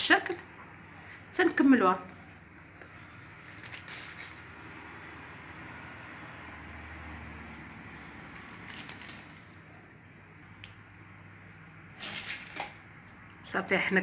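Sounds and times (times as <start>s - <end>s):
baking paper rustling: 2.9s - 4.5s, 8.3s - 9.8s, 12.0s - 12.9s.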